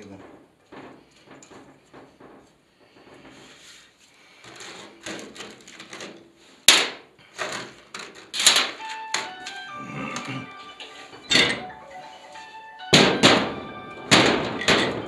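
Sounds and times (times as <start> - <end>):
music: 8.5 - 15.0
metal hardware clinking: 10.8 - 11.6.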